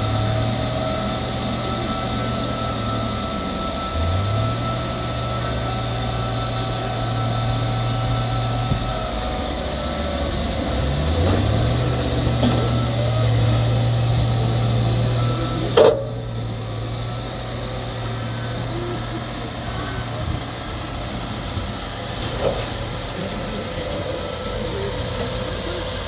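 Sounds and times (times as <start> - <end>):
diesel engine under load: 0.0 - 26.0
loud metallic clank: 15.7 - 16.4.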